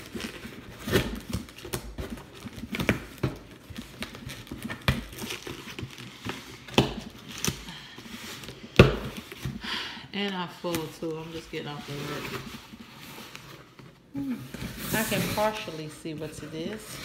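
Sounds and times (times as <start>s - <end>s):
packing tape peeling off cardboard: 0.0s - 8.6s.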